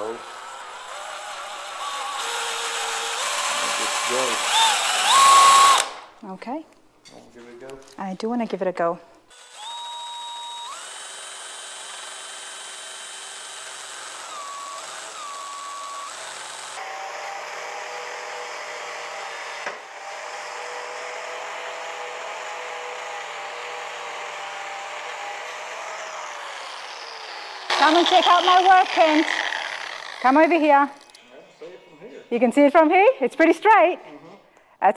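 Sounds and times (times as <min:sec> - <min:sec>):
angle grinder cutting steel: 0:00.0 - 0:06.0, 0:09.3 - 0:31.2
cordless drill whining into steel: 0:00.0 - 0:06.0, 0:09.3 - 0:31.3.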